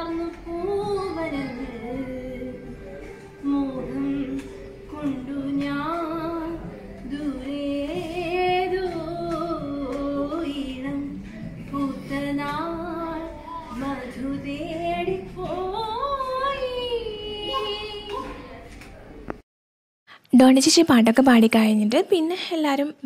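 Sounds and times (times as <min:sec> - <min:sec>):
woman singing long gliding notes: 0:00.0 - 0:18.2.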